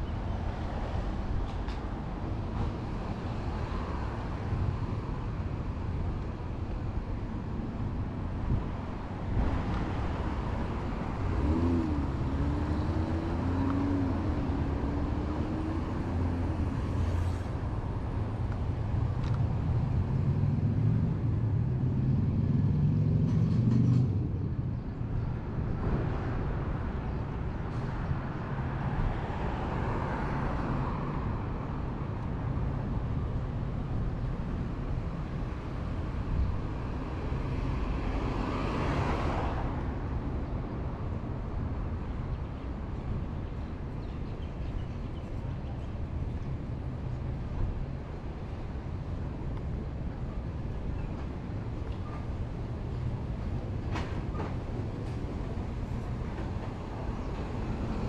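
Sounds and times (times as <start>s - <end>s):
road noise from passing cars: 0.0s - 58.0s
vehicle engine passing by: 11.1s - 17.5s.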